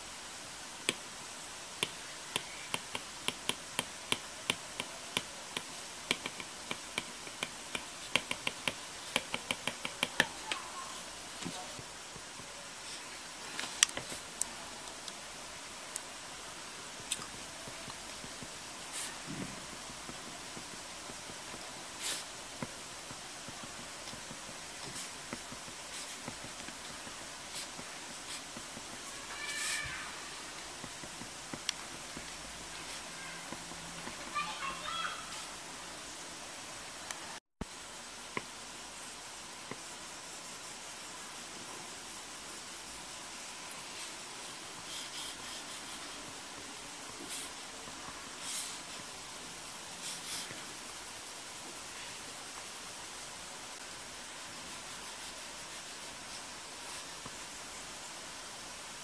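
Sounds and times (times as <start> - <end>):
steady background hiss: 0.0 - 59.0
stylus tapping on glass screen: 1.8 - 10.3.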